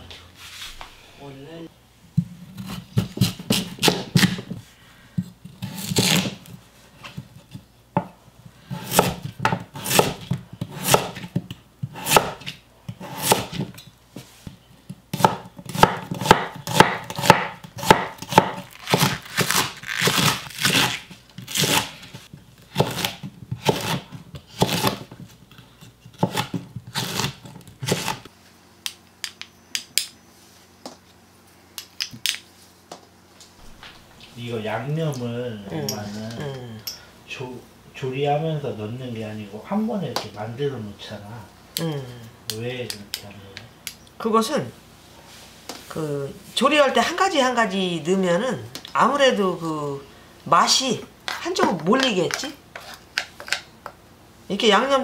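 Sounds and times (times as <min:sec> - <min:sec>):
knife chopping on wooden board: 0:02.6 - 0:04.6, 0:08.8 - 0:13.8, 0:15.1 - 0:21.9, 0:22.7 - 0:25.2, 0:26.1 - 0:28.2.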